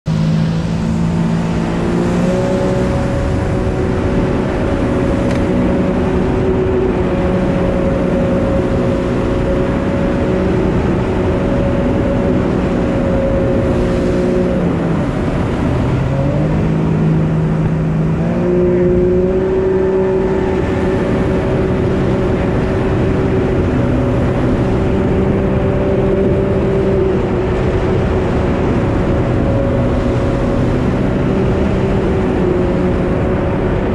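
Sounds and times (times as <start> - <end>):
jet ski engine: 0.0 - 33.9.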